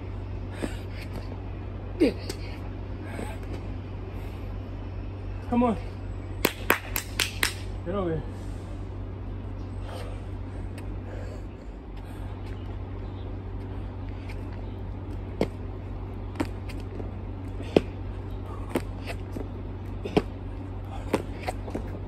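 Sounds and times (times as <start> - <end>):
steady low hum: 0.0 - 22.0
hands and sneakers slapping asphalt: 2.0 - 3.7, 6.4 - 7.8, 11.9 - 22.0.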